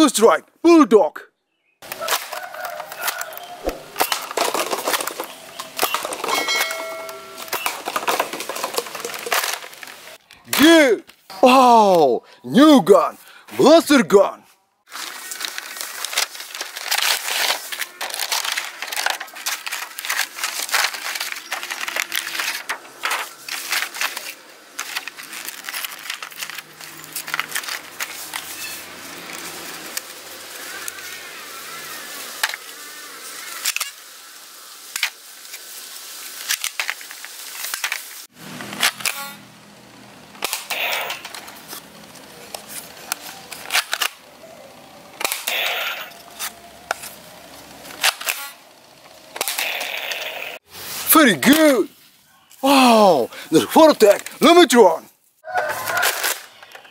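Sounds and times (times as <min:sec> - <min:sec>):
plastic toy blaster clicks and snaps: 0:40.4 - 0:41.5, 0:45.2 - 0:47.1, 0:48.0 - 0:48.6, 0:49.3 - 0:50.3.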